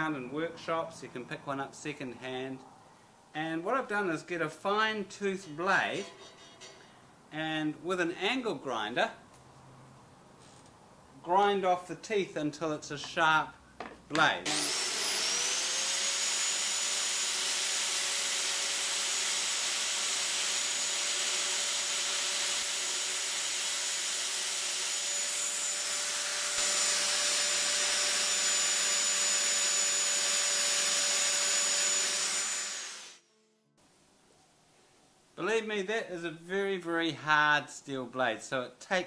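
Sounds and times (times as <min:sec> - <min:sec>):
angle grinder grinding steel: 0:14.5 - 0:33.2.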